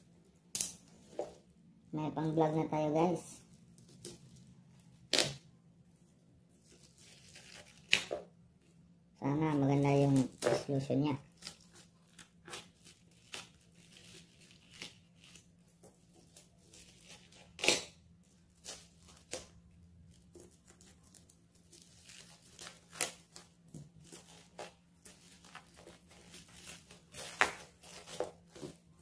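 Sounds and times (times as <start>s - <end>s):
plastic tearing by hand: 6.7s - 8.3s, 9.9s - 29.0s
knife slitting plastic mailer: 21.8s - 28.8s.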